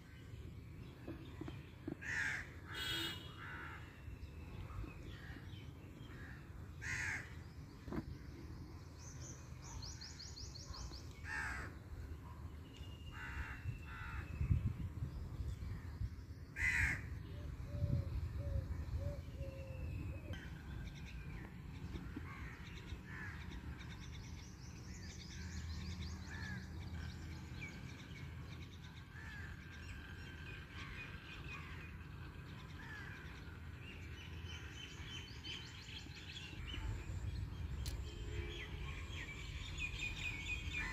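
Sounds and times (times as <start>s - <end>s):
crows cawing: 2.0s - 3.9s, 6.8s - 7.3s, 11.2s - 11.7s, 16.6s - 17.1s.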